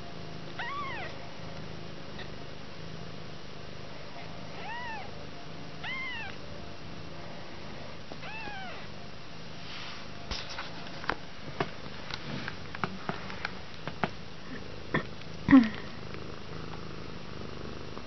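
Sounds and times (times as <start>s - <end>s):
kitten mewing: 0.6s - 1.1s, 5.8s - 6.4s, 8.2s - 8.8s.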